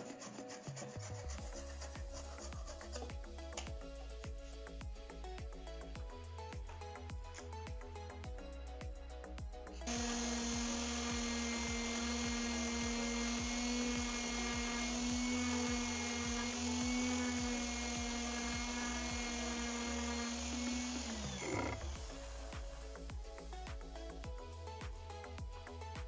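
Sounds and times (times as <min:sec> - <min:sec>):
background music with steady beat: 0:00.0 - 0:26.0
electric orbital sander running: 0:09.8 - 0:23.0.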